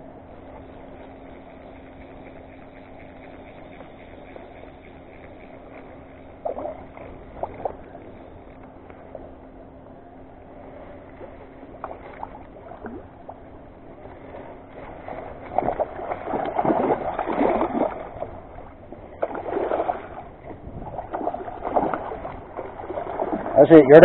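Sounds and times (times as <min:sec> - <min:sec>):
fish splashing in water: 0:11.2 - 0:23.8.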